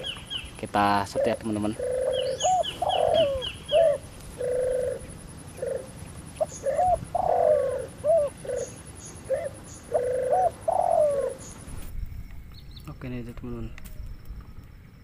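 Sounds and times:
dove cooing: 0:00.0 - 0:11.8.

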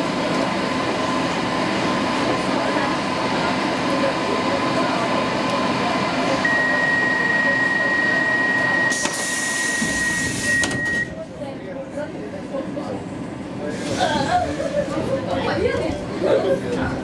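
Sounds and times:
metro train rumble and hum: 0:00.0 - 0:17.0.

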